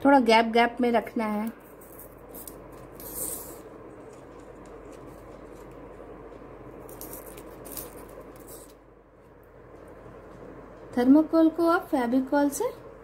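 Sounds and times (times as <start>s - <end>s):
foam balls rustling and clicking: 6.8s - 8.8s.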